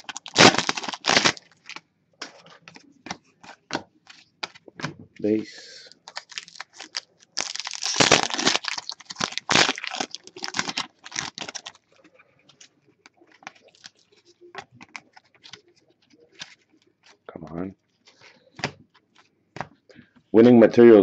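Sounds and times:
foil wrapper tearing and crinkling: 0.0s - 1.8s, 6.0s - 11.8s.

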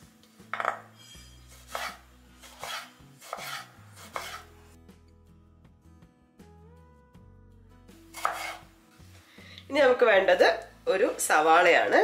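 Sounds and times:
knife slicing tomato: 1.5s - 4.5s, 8.1s - 8.7s.

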